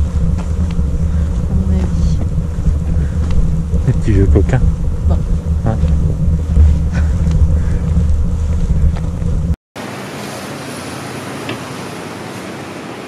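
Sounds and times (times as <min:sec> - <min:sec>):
wind buffeting microphone: 0:00.0 - 0:09.6.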